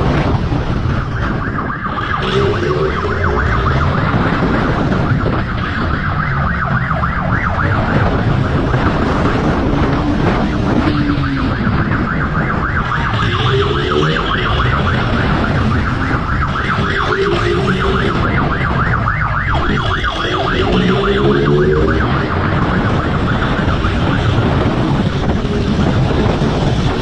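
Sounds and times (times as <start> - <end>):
low rumble of riding noise: 0.0 - 27.0
motorcycle siren yelping: 0.0 - 27.0.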